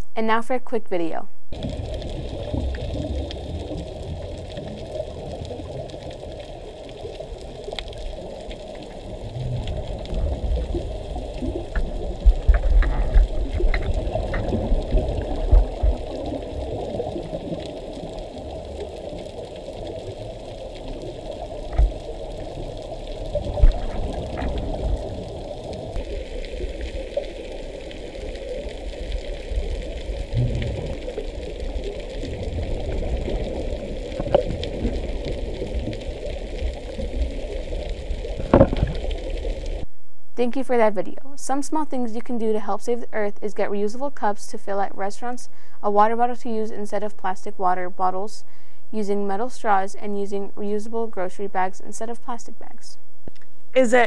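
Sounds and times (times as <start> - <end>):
muffled underwater churning and bubbling: 1.5 - 39.9.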